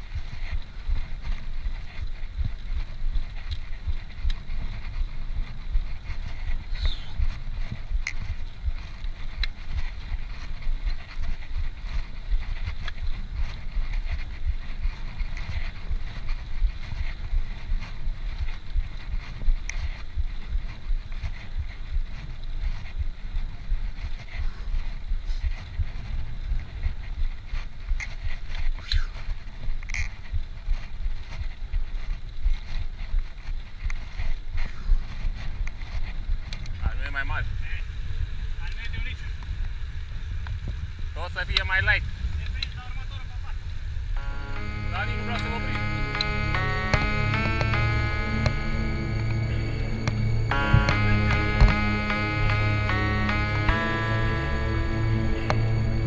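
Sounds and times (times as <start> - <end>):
wind buffeting microphone: 0.0 - 44.7
steady hiss: 36.7 - 50.5.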